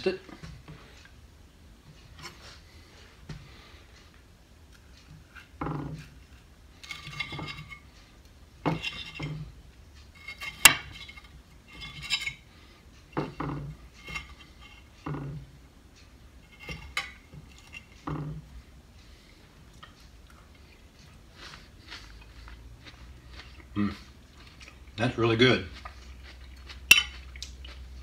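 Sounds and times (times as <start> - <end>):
fork scraping a ceramic plate: 5.1 - 7.9, 8.7 - 12.5, 13.2 - 15.4, 16.5 - 18.4, 25.7 - 27.4.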